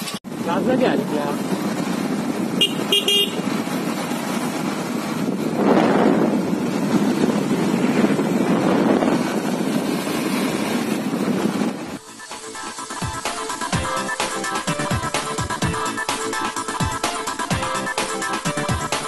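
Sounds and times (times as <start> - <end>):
motorcycle engine: 0.0 - 12.0
wind rushing: 0.3 - 13.8
horn toots: 2.6 - 3.5.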